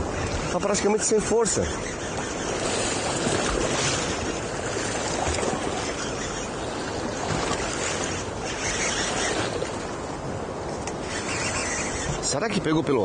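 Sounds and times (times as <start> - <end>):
choppy water around a boat: 0.0 - 13.0.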